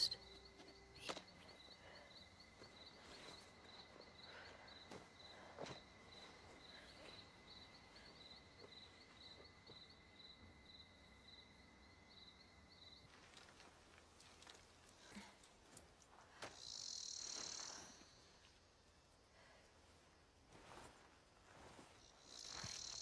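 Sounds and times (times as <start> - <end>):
steady high insect trill: 0.0 - 13.8, 16.1 - 19.2, 21.5 - 23.0
crickets chirping: 0.0 - 23.0.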